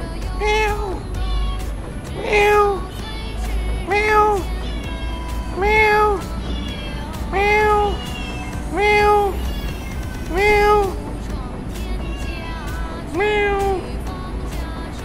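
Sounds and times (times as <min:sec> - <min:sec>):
cat meowing: 0:00.4 - 0:01.1, 0:02.2 - 0:02.9, 0:03.8 - 0:11.0, 0:11.8 - 0:13.9.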